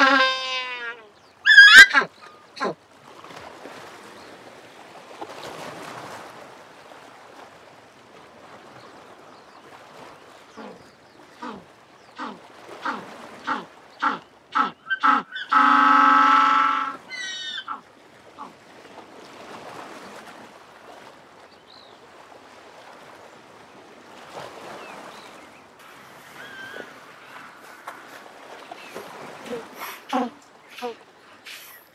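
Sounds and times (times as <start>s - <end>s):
penguin braying: 0.0s - 2.8s, 12.2s - 17.8s.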